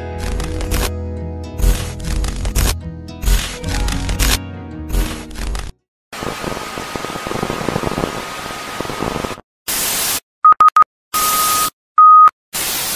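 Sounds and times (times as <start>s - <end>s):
loud static burst: 5.4s - 10.2s
television static hiss: 6.2s - 9.4s
quick beeps: 10.4s - 12.3s.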